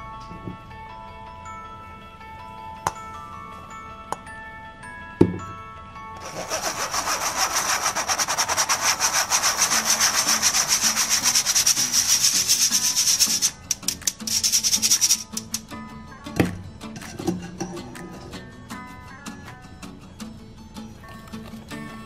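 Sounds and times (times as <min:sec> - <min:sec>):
whisk scraping in mesh sieve: 0:06.2 - 0:15.5.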